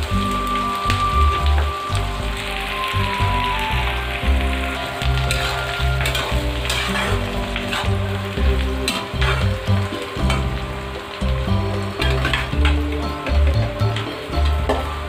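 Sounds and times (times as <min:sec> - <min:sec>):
onions sizzling in hot oil: 0:00.0 - 0:15.0
metal spatula scraping: 0:04.8 - 0:10.5, 0:12.0 - 0:12.8.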